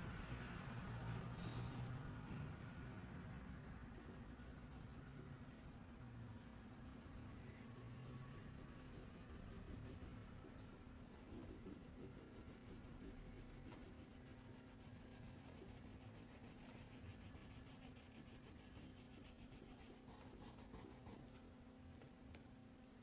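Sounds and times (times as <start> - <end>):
steady low hum: 0.0 - 23.0
crayon scratching on paper: 6.4 - 21.2.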